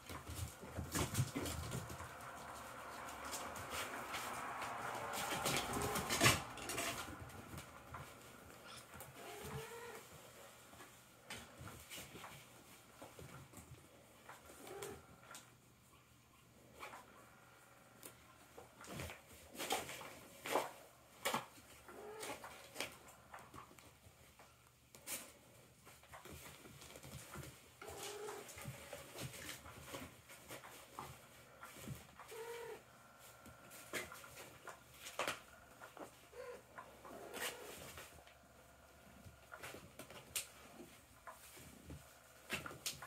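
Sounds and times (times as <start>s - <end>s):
kittens scratching fabric toy: 0.0s - 15.5s, 18.0s - 43.0s.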